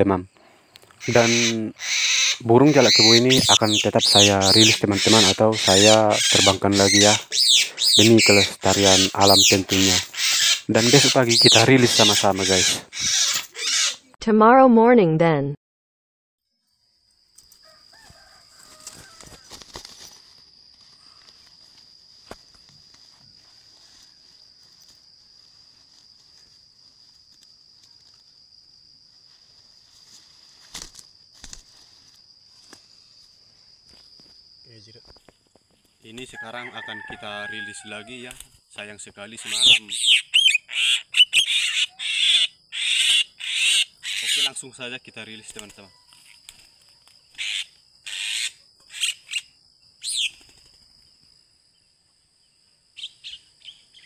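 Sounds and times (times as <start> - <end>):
high-pitched insect drone: 0.0 - 14.2, 16.5 - 35.2, 36.1 - 54.0
bird squawking: 1.0 - 14.1, 39.4 - 44.6, 47.4 - 49.4.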